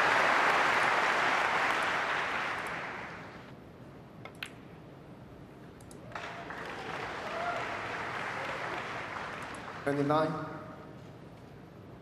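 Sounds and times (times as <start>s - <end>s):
crowd applauding: 0.0s - 3.4s, 6.1s - 10.1s.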